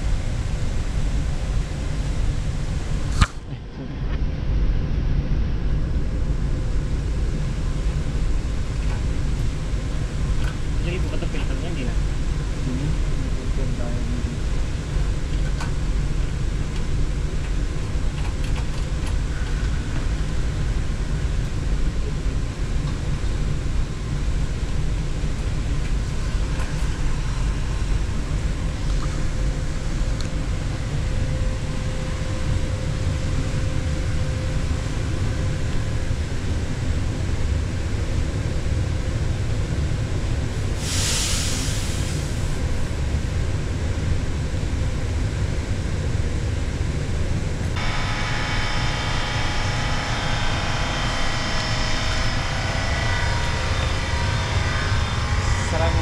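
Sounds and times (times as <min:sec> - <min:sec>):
low machinery drone: 0:00.0 - 0:56.0
brief hiss: 0:40.8 - 0:42.6.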